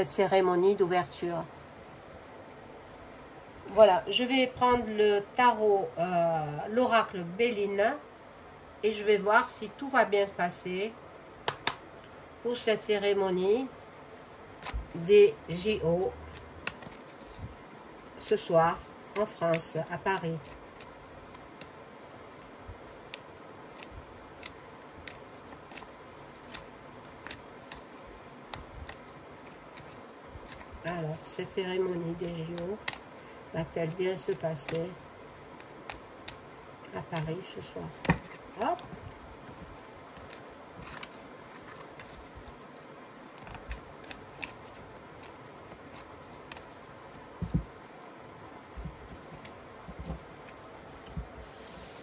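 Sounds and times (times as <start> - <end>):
cards being shuffled: 14.1 - 47.8, 48.8 - 52.0.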